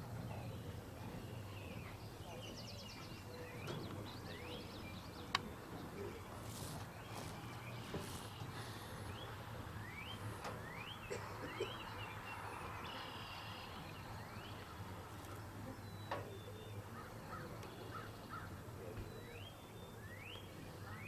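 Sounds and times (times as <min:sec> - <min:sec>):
birds calling: 0:00.0 - 0:21.0
faint bird chirps: 0:07.0 - 0:21.0.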